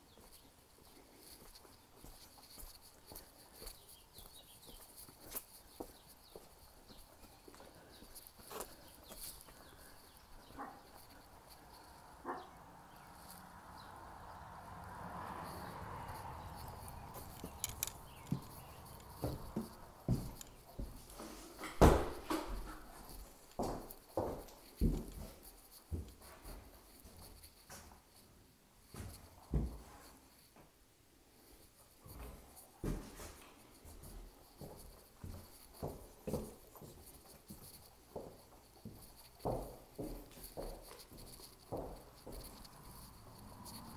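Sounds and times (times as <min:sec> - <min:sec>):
footsteps on hard floor: 0:15.8 - 0:28.0, 0:28.9 - 0:29.9, 0:32.0 - 0:43.9.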